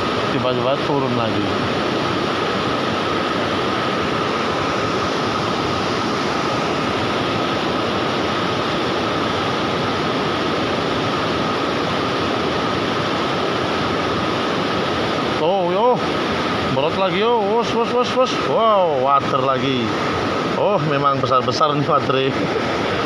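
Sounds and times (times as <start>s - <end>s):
water rushing over weir: 0.0s - 23.0s.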